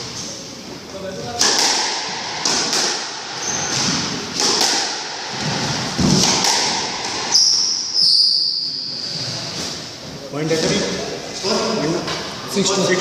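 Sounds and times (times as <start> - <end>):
squash ball hitting rackets and walls: 1.2 - 9.9
shoes squeaking on wooden floor: 3.4 - 4.1, 7.3 - 10.0.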